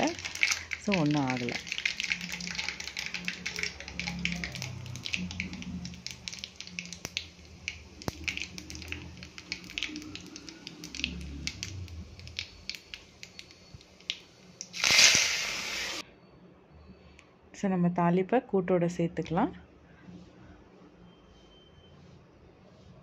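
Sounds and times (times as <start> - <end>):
seeds popping in hot oil: 0.0 - 16.0.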